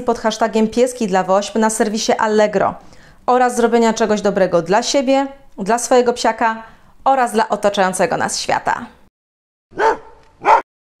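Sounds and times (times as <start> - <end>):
dog barking: 9.7 - 10.7.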